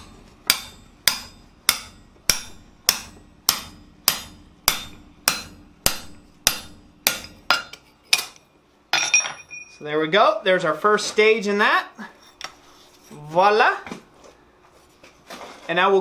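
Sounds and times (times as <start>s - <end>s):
hammer striking metal punch: 0.0s - 8.4s.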